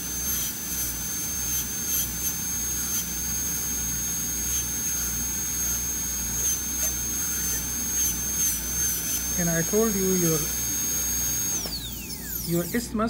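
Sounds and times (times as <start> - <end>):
dental drill whine: 0.0 - 13.0.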